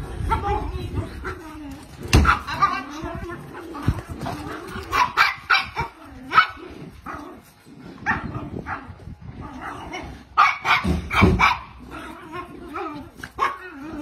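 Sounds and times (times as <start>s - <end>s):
dogs barking: 4.1s - 12.2s, 12.8s - 14.0s.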